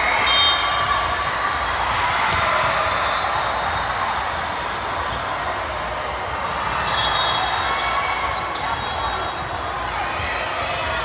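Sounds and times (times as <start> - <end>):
many voices talking: 0.0 - 11.0.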